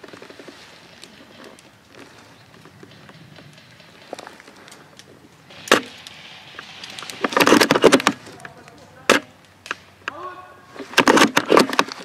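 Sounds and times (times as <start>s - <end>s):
clattering and rustling: 0.0s - 9.3s
airsoft rifle shots: 5.5s - 8.3s.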